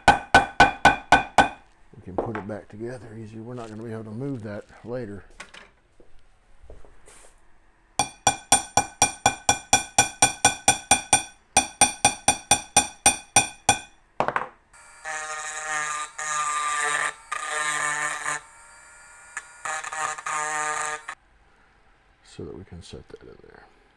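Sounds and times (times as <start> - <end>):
hammer tapping steel punch: 0.0 - 1.6, 8.0 - 14.4.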